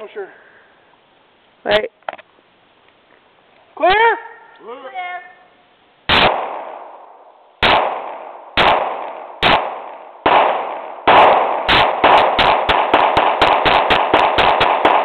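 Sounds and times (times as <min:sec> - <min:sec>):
pistol shots: 0:06.1 - 0:15.0.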